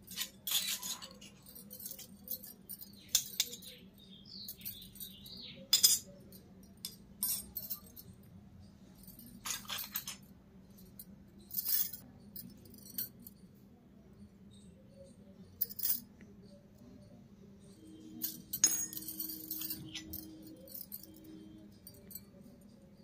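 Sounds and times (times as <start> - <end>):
metal utensils clinking on concrete: 0.0 - 8.2, 8.9 - 13.4, 15.6 - 16.1, 17.8 - 23.0.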